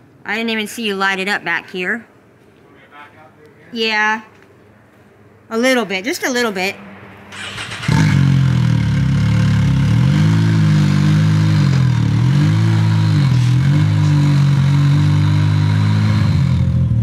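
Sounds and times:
engine revving and idling: 7.0s - 17.0s.

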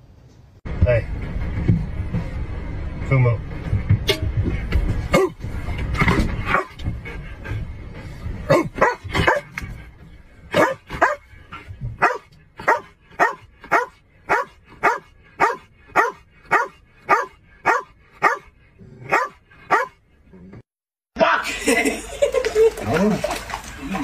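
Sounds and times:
dog barking: 5.1s - 5.4s, 6.5s - 6.8s, 8.5s - 9.5s, 10.5s - 11.2s, 12.0s - 20.0s.

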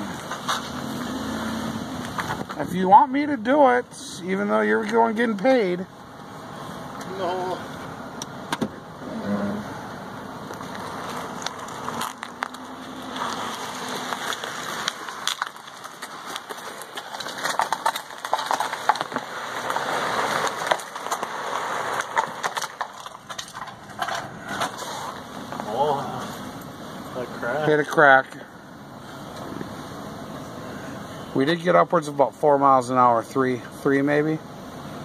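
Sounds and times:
plastic trash can scraping on asphalt: 0.1s - 1.3s, 10.5s - 25.6s.

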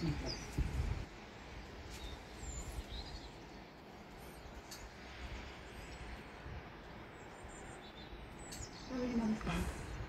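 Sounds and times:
steady hiss: 0.4s - 10.0s
faint high bird chirps: 7.1s - 9.5s.

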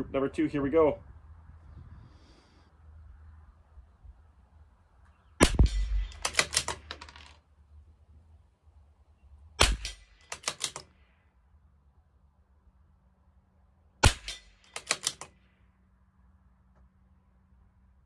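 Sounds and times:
rifle shots: 5.4s - 7.3s, 9.6s - 10.9s, 14.0s - 15.4s
rifle bolt clicks: 5.7s - 7.3s, 9.6s - 10.9s, 14.1s - 15.4s.

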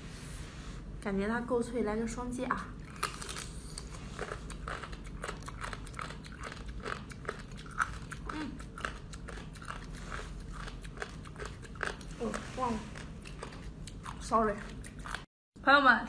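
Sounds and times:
crunchy chewing: 2.8s - 15.3s.

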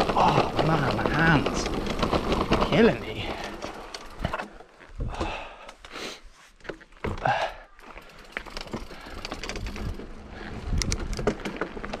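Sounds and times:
bike rattling and knocking: 0.0s - 5.6s, 6.6s - 12.0s
bike tyre noise on trail: 0.0s - 12.0s
wind rumble on microphone: 9.5s - 11.4s.

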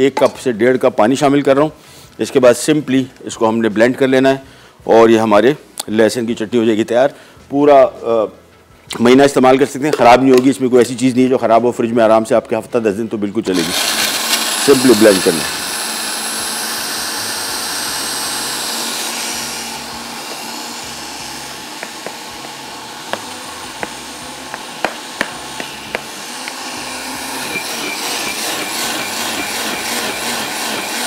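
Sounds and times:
blender motor running: 13.5s - 31.0s.

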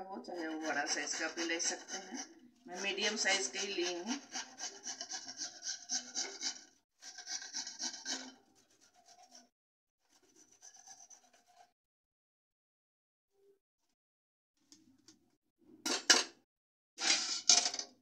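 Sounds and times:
onion grated on metal grater: 0.2s - 9.4s, 10.1s - 11.7s.

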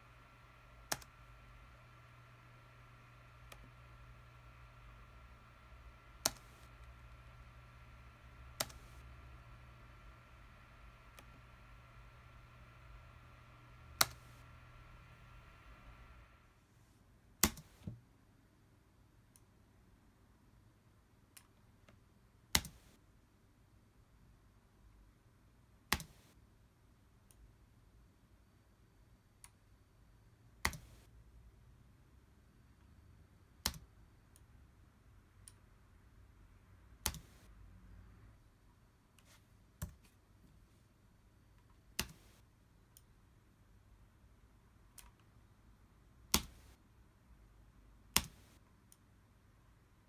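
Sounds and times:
faint steady hum: 0.0s - 50.0s
mouse and keyboard clicks: 0.8s - 5.5s, 6.1s - 12.0s, 14.0s - 14.7s, 30.6s - 31.1s, 37.0s - 37.5s, 42.0s - 42.4s, 46.3s - 46.8s, 48.1s - 48.6s.

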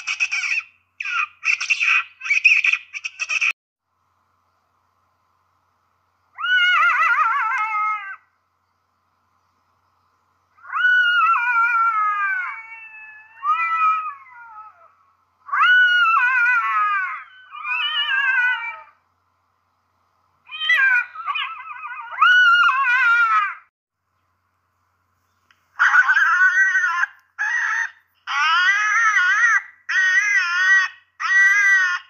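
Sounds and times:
jackal wailing calls: 6.4s - 8.3s, 10.6s - 19.0s, 20.5s - 23.6s, 25.8s - 32.0s.

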